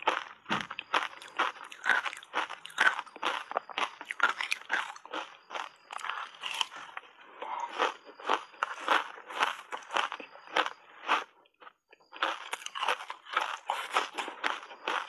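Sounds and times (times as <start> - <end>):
crisp ice crunching: 0.8 - 7.0, 12.2 - 15.0.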